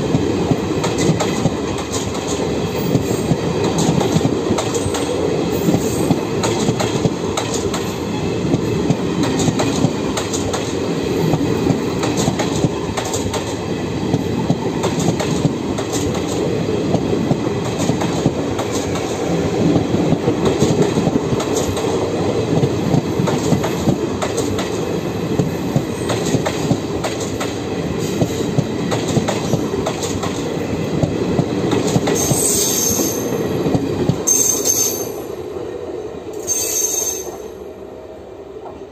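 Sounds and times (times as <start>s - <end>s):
train wheels rumbling on rails: 0.0s - 38.9s
wheel squeal: 36.4s - 37.4s.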